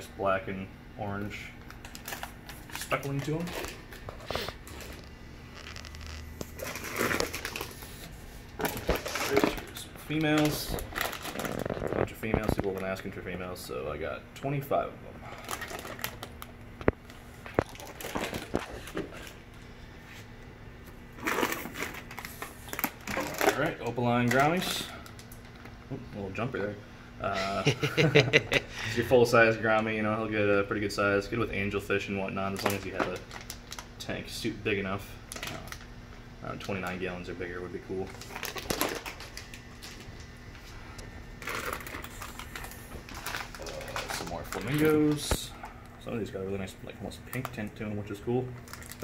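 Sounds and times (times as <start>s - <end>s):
plastic bags crinkling: 1.6s - 13.1s, 15.2s - 19.6s, 21.2s - 25.6s, 32.4s - 34.0s, 37.9s - 40.7s, 41.4s - 46.6s, 47.2s - 49.0s.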